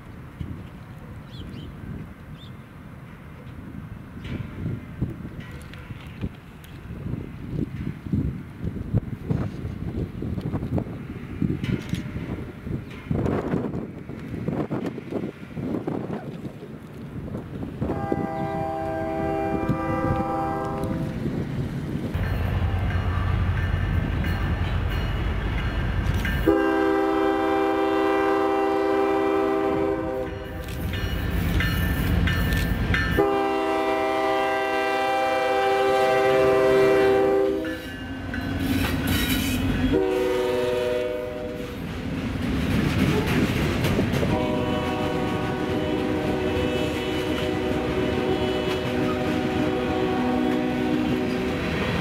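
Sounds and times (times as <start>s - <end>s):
diesel locomotive engine rumbling: 0.0s - 52.0s
train wheels clattering: 7.5s - 15.3s, 30.3s - 33.6s, 41.6s - 49.8s
multi-note air horn blasts: 17.9s - 21.0s, 26.5s - 30.4s, 33.2s - 37.8s, 39.9s - 41.6s, 44.3s - 51.5s.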